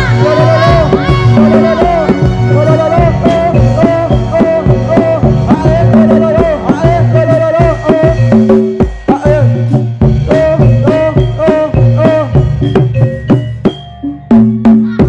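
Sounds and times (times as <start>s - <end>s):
drums beating: 0.0s - 15.0s
wavering melody line: 0.0s - 15.0s.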